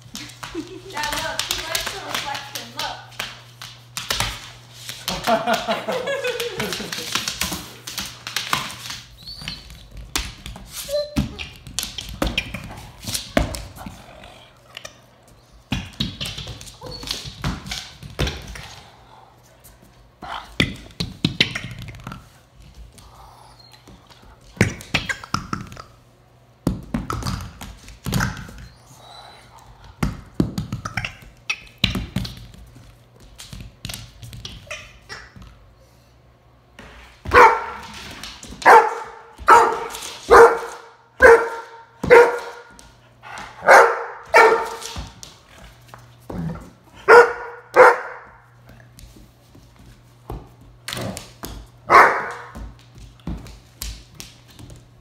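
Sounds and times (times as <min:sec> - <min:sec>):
dog barking: 0:37.3 - 0:37.8, 0:38.6 - 0:42.7, 0:43.6 - 0:44.8, 0:47.1 - 0:48.3, 0:51.9 - 0:52.5.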